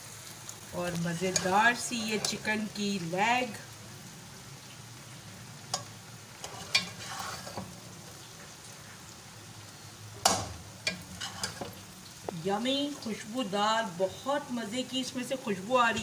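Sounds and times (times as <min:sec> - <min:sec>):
metal tongs scraping a pot: 0:01.2 - 0:02.5, 0:05.7 - 0:07.8, 0:10.2 - 0:11.8.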